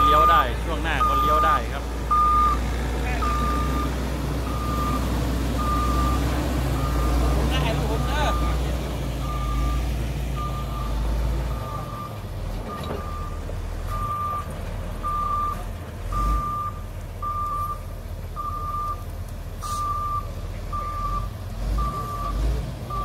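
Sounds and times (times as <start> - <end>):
backup alarm beeping: 0.0 - 2.6, 3.2 - 8.6, 9.2 - 12.2, 12.8 - 17.8
diesel engine rumble: 0.0 - 23.0.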